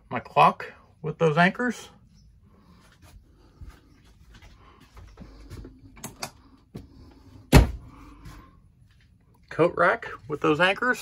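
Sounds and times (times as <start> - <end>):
sharp loud thud: 7.5 - 7.8.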